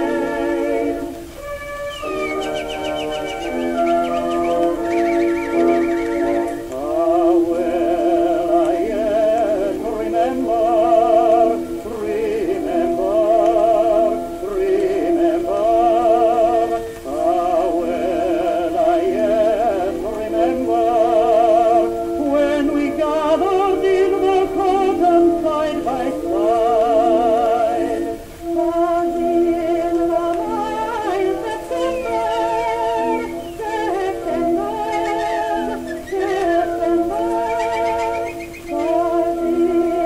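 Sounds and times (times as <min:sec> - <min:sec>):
orchestra accompaniment: 0:00.0 - 0:07.0
woman and man singing duet: 0:01.9 - 0:40.0.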